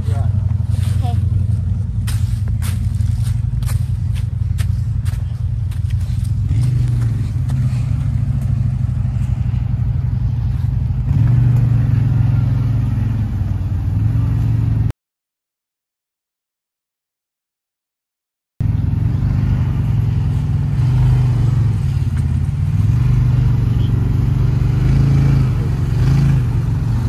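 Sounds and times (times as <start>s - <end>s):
footsteps on dry leaves: 0.0s - 8.4s
off-road vehicle engine running: 0.0s - 14.9s, 18.6s - 27.0s.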